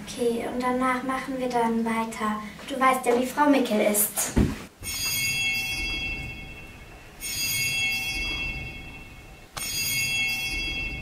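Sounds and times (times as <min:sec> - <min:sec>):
bell ringing: 0:04.8 - 0:11.0.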